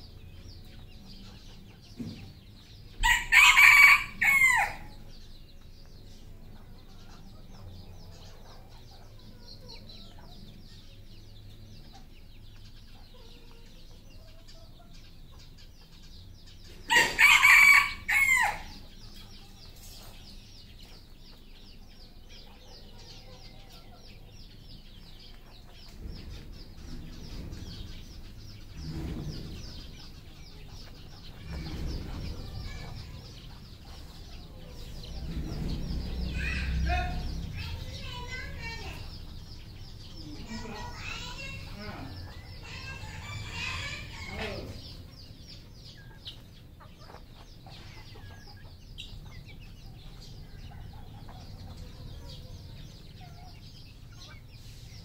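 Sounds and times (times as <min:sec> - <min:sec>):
rooster crowing: 0:03.0 - 0:05.0, 0:16.9 - 0:18.8
low rumbling: 0:24.3 - 0:54.4.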